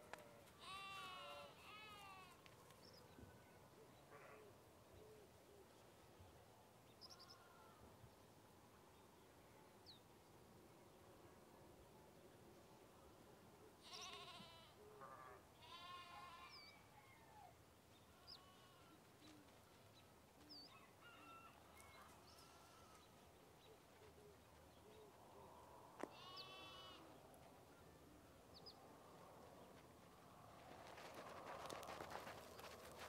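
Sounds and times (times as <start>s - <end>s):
livestock bleating: 0.5s - 2.4s, 13.8s - 16.8s, 18.1s - 19.0s, 22.3s - 23.1s, 26.0s - 27.2s.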